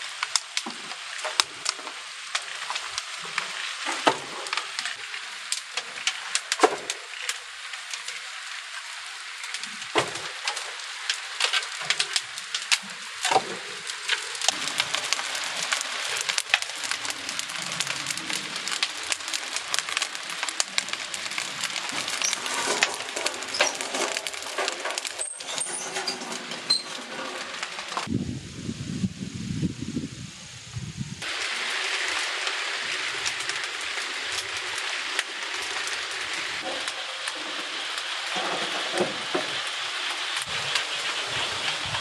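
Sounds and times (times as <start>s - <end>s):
wood fire crackling and hissing: 0.0s - 42.0s
firewood knocking: 4.0s - 4.4s, 9.9s - 10.4s.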